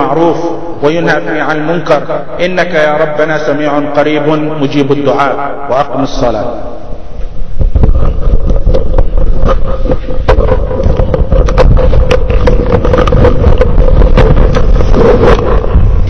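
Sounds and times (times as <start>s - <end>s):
steady hum: 0.0s - 16.0s
microphone handling noise: 6.7s - 16.0s.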